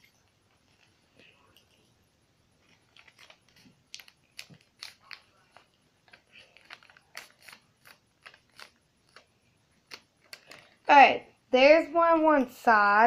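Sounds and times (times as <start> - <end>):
paper being folded and creased: 2.6 - 11.0.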